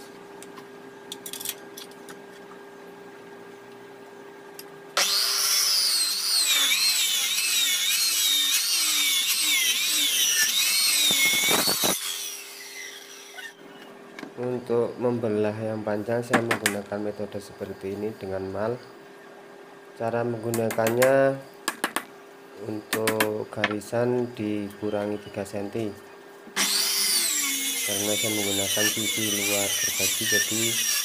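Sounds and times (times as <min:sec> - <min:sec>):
circular saw cutting wood: 0:05.0 - 0:13.6, 0:26.6 - 0:31.0.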